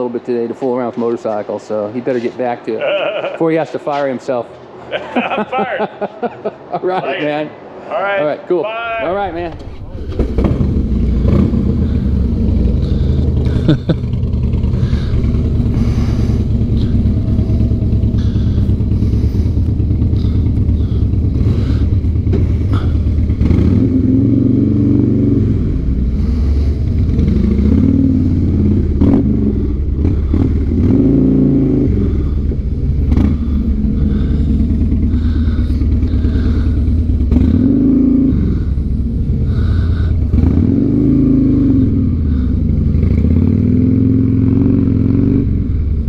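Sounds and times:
motorcycle engine revving: 0:09.2 - 0:46.0.

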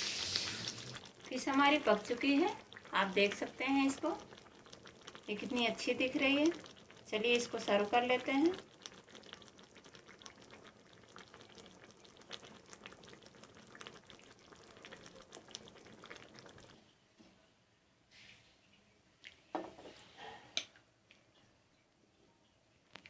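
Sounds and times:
curry bubbling in a pan: 0:00.0 - 0:16.8.

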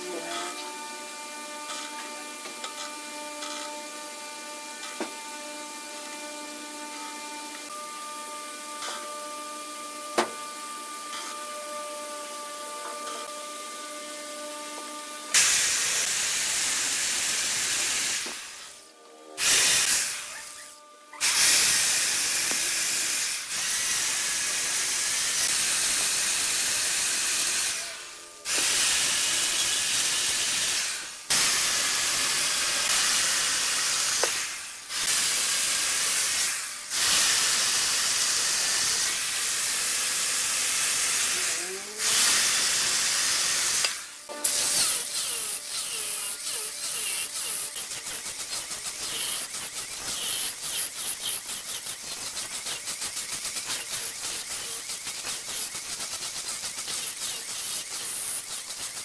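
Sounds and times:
chainsaw cutting wood: 0:21.2 - 0:59.0.

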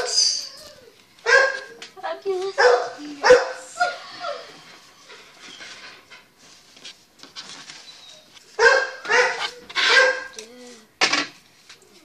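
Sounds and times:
dog whining: 0:00.0 - 0:01.8
dog barking: 0:01.2 - 0:01.8, 0:02.6 - 0:04.0, 0:08.6 - 0:10.4
paper rustling: 0:05.2 - 0:10.3.

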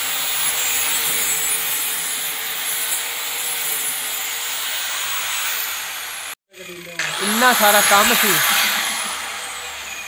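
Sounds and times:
angle grinder whining: 0:07.0 - 0:10.0.

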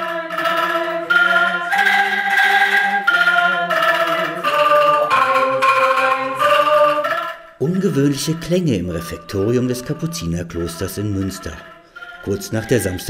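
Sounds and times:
angklung ensemble playing chords: 0:00.0 - 0:13.0.

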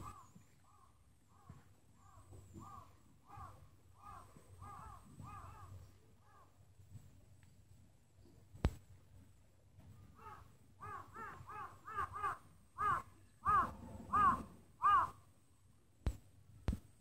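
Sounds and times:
bird calling: 0:00.0 - 0:06.5, 0:10.1 - 0:15.2.

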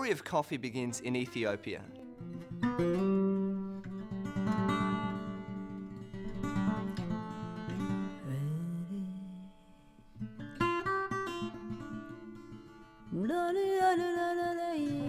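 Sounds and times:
acoustic guitar picking: 0:00.8 - 0:13.2.

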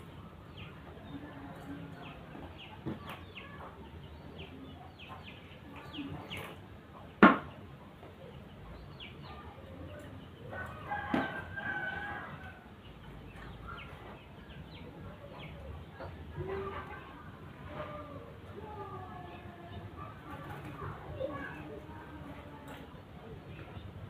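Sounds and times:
sharp knock: 0:07.2 - 0:07.5.

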